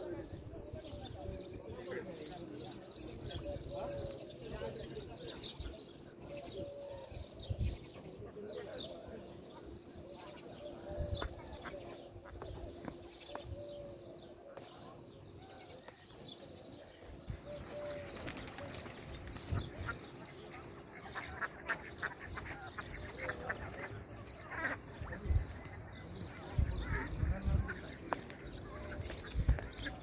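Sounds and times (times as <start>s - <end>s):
ducks quacking: 19.8s - 28.1s.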